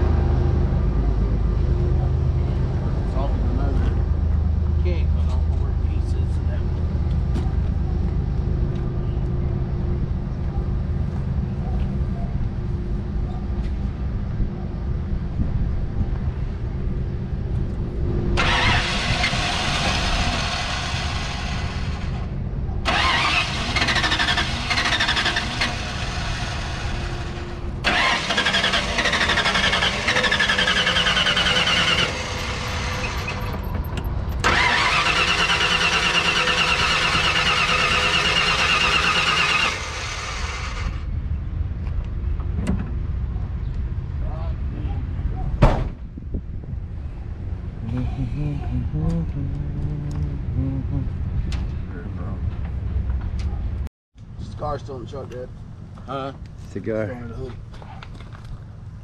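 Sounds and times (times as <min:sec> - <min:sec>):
high engine whine: 0:00.0 - 0:44.9, 0:46.3 - 0:59.0
truck engine running: 0:16.4 - 0:41.1.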